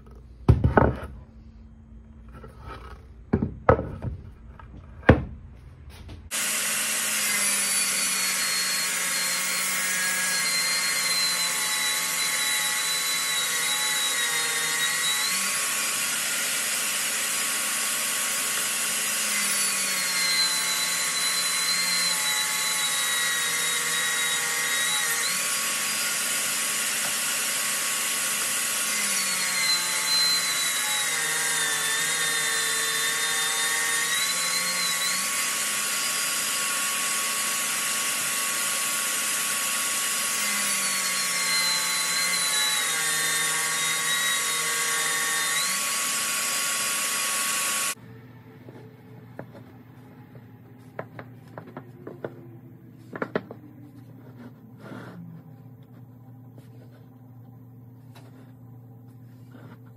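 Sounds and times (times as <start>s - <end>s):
table saw cutting wood: 6.3s - 48.0s.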